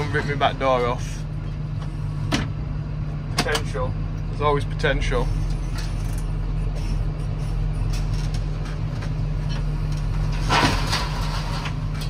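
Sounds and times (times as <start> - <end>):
tractor engine running: 0.0 - 12.0
scrape or clatter: 10.3 - 12.0.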